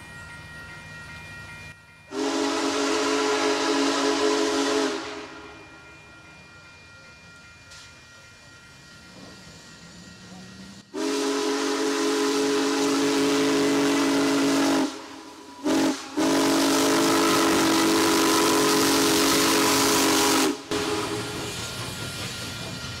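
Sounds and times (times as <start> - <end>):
passing train rush and hiss: 0.0 - 23.0
steam locomotive whistle: 2.1 - 5.8, 10.8 - 21.7.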